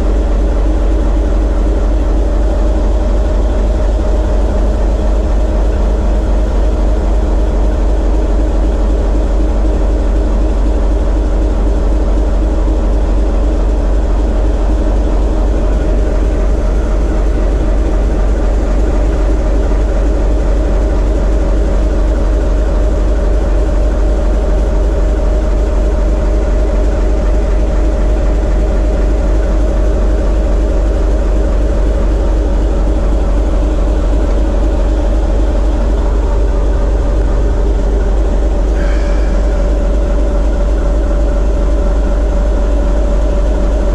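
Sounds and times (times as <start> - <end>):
diesel engine deep rumble: 0.0 - 43.9
steady hum: 0.0 - 43.9.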